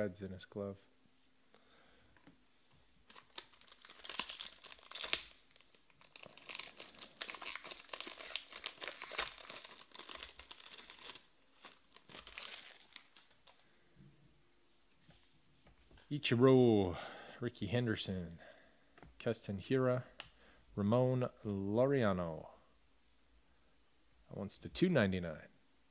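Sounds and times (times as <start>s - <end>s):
foil wrapper crinkling: 3.0s - 13.7s
sharp foil crackle: 3.1s - 13.6s.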